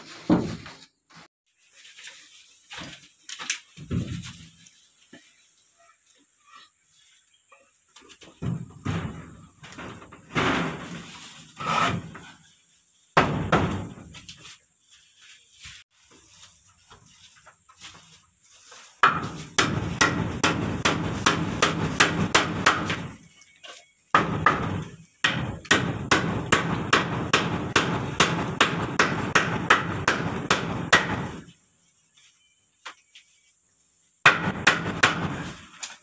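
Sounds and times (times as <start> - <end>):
hammer blows on wooden frame: 19.0 - 23.1, 24.1 - 31.5, 34.2 - 35.6.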